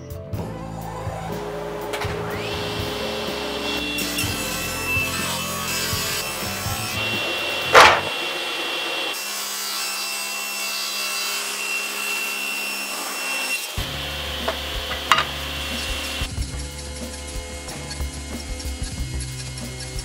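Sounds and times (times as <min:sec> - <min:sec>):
spinning saw blade whirring: 0:01.3 - 0:09.2
table saw blade cutting wood: 0:01.6 - 0:20.0
wood knocking: 0:07.2 - 0:08.6, 0:14.4 - 0:15.4.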